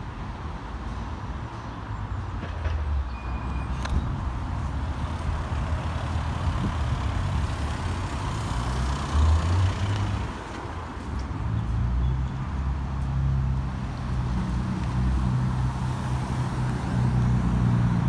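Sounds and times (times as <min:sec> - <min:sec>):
road traffic rumble and tyre hiss: 0:00.0 - 0:18.0
vehicle passing: 0:04.6 - 0:10.5.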